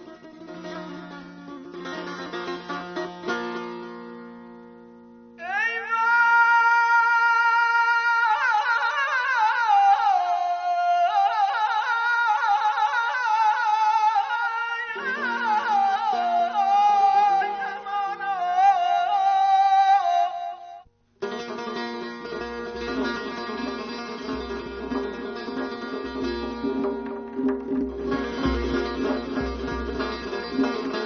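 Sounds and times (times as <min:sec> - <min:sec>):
plucked string notes: 0:00.0 - 0:05.4, 0:21.2 - 0:31.0
person singing: 0:05.4 - 0:20.8.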